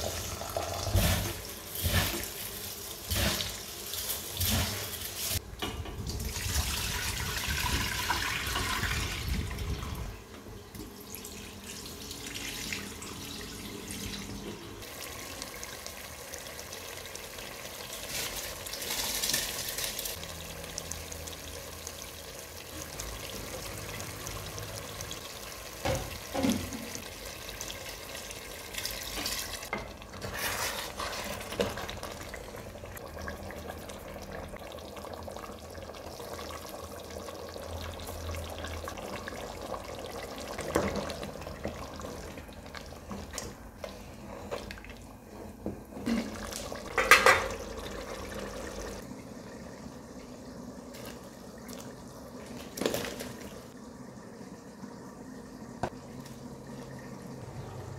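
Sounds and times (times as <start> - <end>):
rice rinsed in a strainer: 6.1 - 9.7, 14.8 - 20.2.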